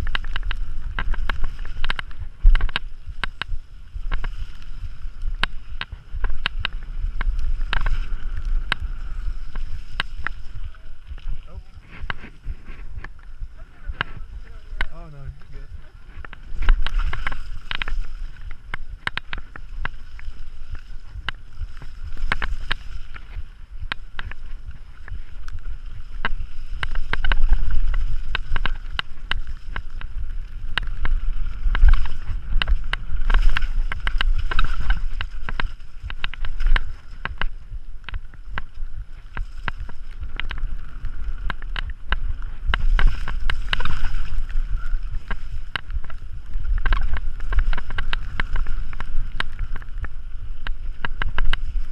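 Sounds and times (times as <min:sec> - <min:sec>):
bike rattling over rocks: 0:00.0 - 0:51.9
wind rumble on microphone: 0:00.0 - 0:51.9.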